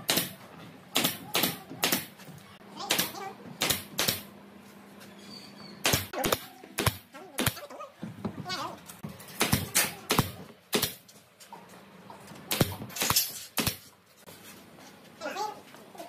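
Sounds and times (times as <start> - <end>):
pneumatic nailer firing: 1.0 - 2.1, 2.8 - 4.3, 12.5 - 13.9.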